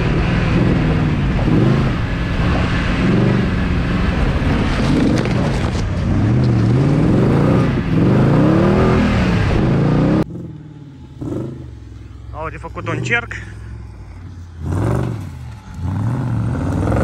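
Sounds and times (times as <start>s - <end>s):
off-road vehicle engine revving: 0.0s - 17.0s
vehicle scraping through brush: 4.0s - 7.0s.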